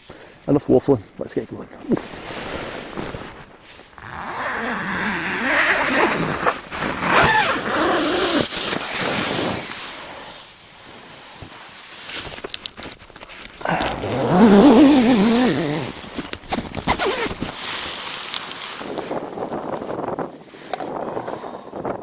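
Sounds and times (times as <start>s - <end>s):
nylon fabric rustling: 1.5s - 20.7s
tent zip rasping: 1.7s - 10.2s, 13.2s - 21.5s.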